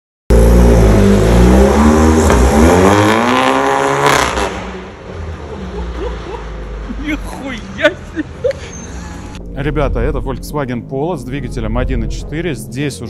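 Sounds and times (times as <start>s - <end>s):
exhaust crack: 0.3s - 5.5s
car engine revving: 0.3s - 7.9s.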